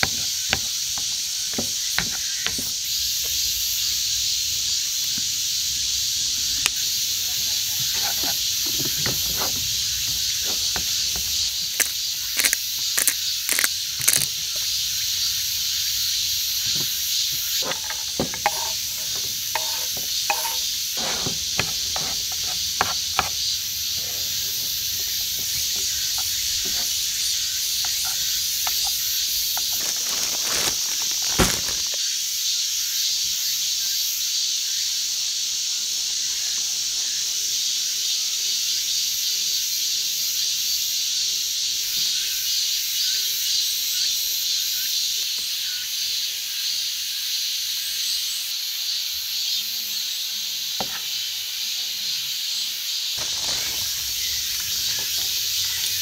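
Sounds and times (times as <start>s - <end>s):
cicadas buzzing: 0.0s - 56.0s
knocks and clatters: 17.6s - 23.4s.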